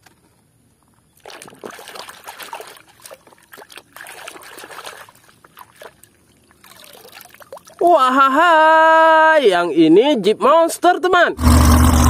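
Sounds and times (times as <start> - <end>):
water splashing and trickling: 1.0 - 8.2
hand sloshing toys in water: 1.2 - 7.8.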